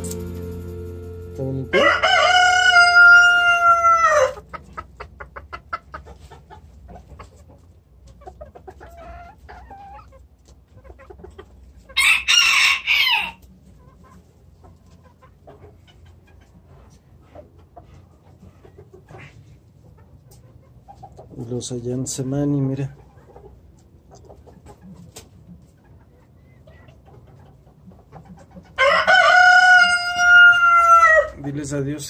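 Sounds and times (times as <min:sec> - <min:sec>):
rooster crowing: 0:01.7 - 0:04.4, 0:12.0 - 0:13.4, 0:28.8 - 0:31.3.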